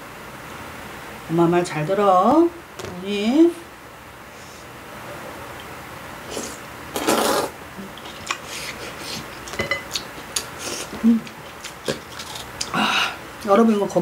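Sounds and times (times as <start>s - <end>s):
loud slurp of noodles: 6.3s - 7.6s.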